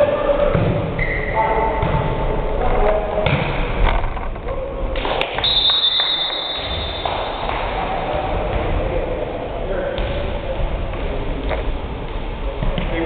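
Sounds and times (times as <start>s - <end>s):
volleyball hits: 2.9s - 4.0s, 4.9s - 9.1s
high steady squeal: 5.4s - 7.5s.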